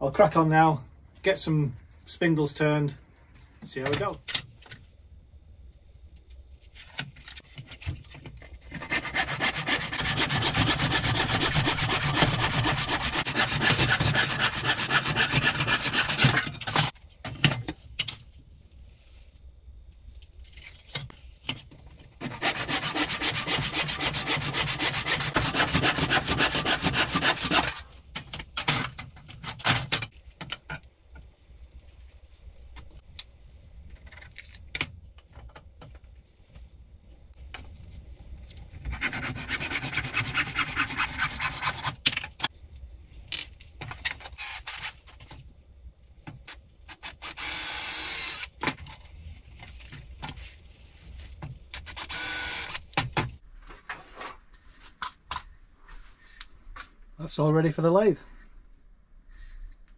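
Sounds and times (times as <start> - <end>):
hand saw cutting wood: 8.7 - 16.9, 22.2 - 27.9, 38.9 - 42.0.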